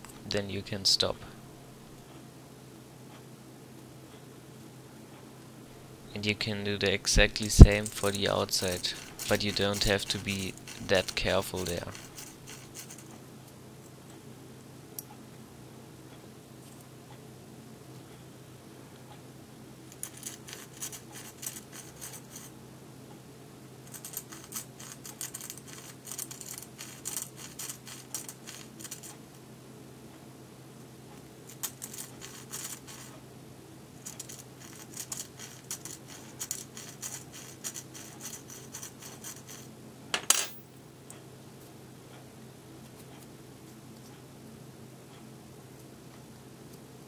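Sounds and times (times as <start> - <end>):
drill bit scraping plastic: 8.0 - 12.8.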